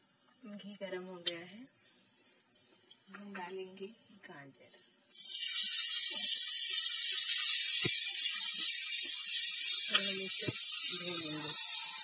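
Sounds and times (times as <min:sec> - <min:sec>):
carrots sizzling in hot fat: 0:05.1 - 0:12.0.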